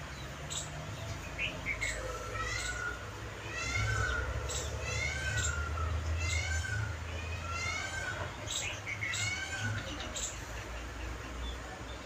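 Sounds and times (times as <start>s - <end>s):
animal calling with high notes: 1.7s - 10.3s.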